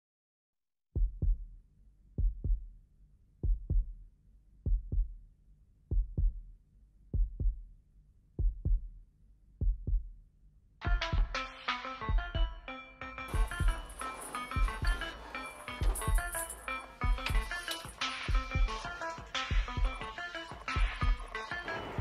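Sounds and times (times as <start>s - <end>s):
slow heartbeat: 1.0s - 1.6s, 2.2s - 2.7s, 3.4s - 4.0s, 4.6s - 5.2s, 5.9s - 6.5s, 7.1s - 7.7s, 8.4s - 9.0s, 9.6s - 10.2s, 15.8s - 16.4s, 18.3s - 18.9s, 19.5s - 20.1s.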